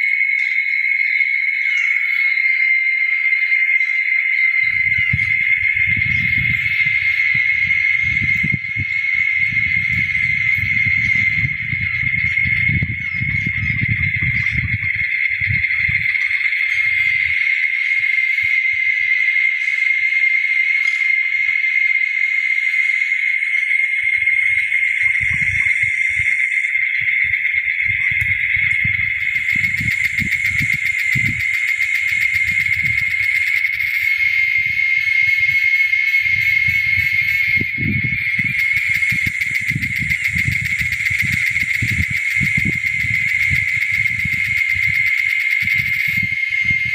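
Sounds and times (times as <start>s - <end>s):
insects buzzing: 0.0s - 46.9s
low rumbling noise: 4.6s - 17.4s, 27.0s - 46.9s.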